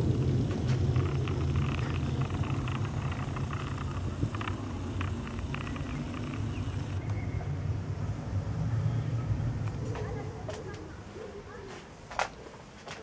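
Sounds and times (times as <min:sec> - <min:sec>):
faint high ticks: 0:00.1 - 0:07.1.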